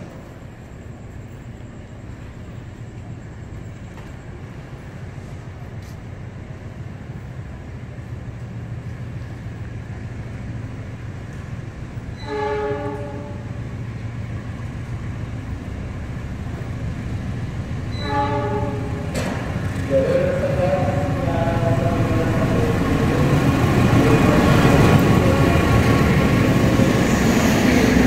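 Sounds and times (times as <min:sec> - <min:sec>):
train rumble: 0:00.0 - 0:28.0
train horn chord: 0:12.2 - 0:13.5, 0:18.0 - 0:19.0.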